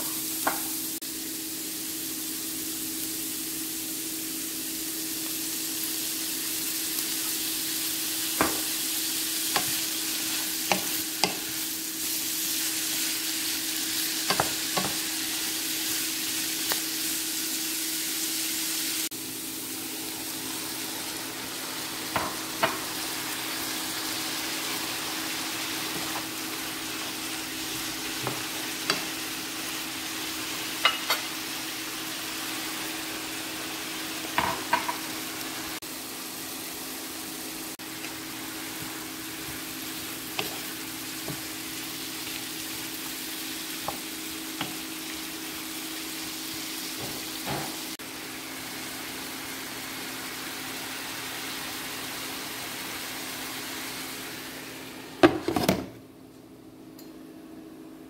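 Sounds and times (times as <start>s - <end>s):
vegetables sizzling in a frying pan: 0.0s - 55.4s
wooden spoon knocking on pan: 0.4s - 0.7s, 8.4s - 8.7s, 14.3s - 15.0s, 22.1s - 22.8s.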